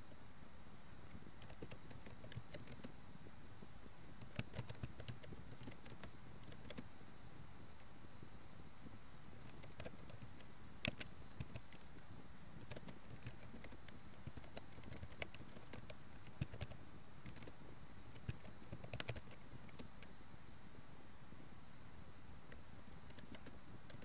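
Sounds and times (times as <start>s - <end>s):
steady low hiss: 0.0s - 24.0s
keyboard key clicks: 18.2s - 19.9s.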